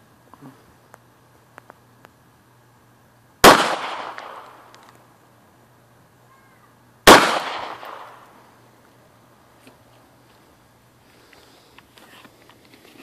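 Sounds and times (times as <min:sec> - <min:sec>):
pistol shots with echo: 0:03.4 - 0:04.7, 0:07.0 - 0:08.3.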